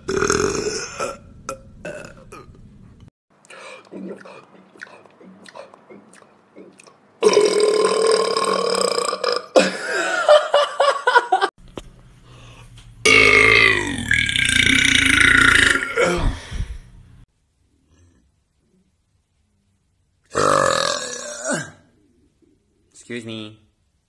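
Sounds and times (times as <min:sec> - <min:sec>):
man burping: 0:00.0 - 0:02.6, 0:07.2 - 0:10.0, 0:13.1 - 0:16.2, 0:20.3 - 0:21.9.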